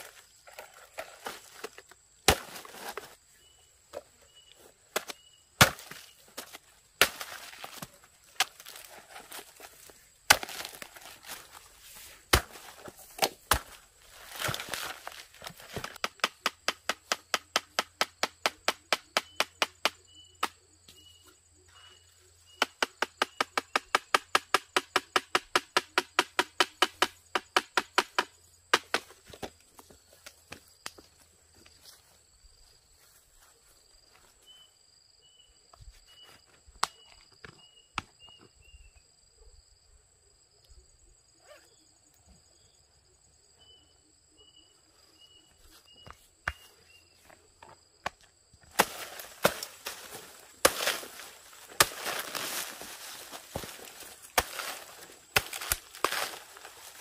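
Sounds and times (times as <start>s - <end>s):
blade chopping: 48.8s - 57.0s.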